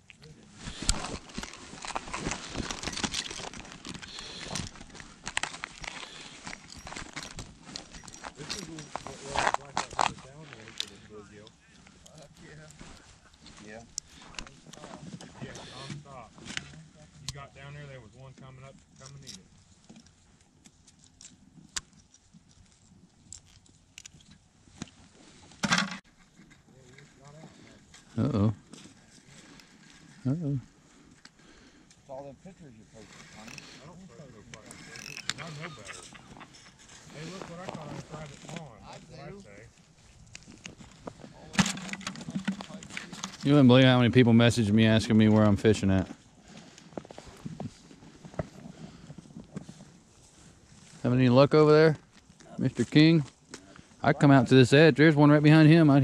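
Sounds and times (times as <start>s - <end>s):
gloved hands rustling: 0.0s - 16.8s, 33.0s - 51.2s
crunching on snowy ice: 0.4s - 11.0s.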